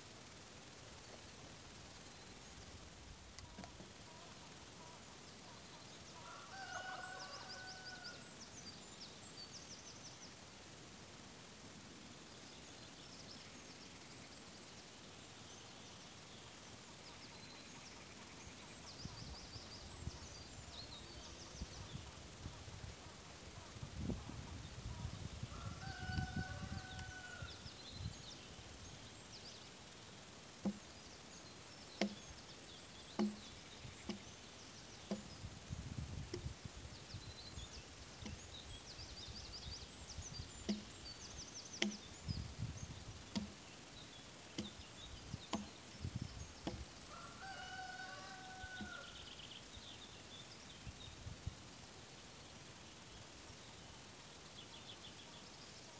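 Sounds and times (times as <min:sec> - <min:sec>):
birds singing: 0:03.3 - 0:10.4, 0:12.4 - 0:55.9
tool knocking on log: 0:30.6 - 0:30.9, 0:32.0 - 0:32.2, 0:33.2 - 0:34.3, 0:35.1 - 0:35.4, 0:40.7 - 0:40.9, 0:41.8 - 0:42.1, 0:43.3 - 0:43.6, 0:44.6 - 0:44.8, 0:45.5 - 0:45.8, 0:46.6 - 0:46.8.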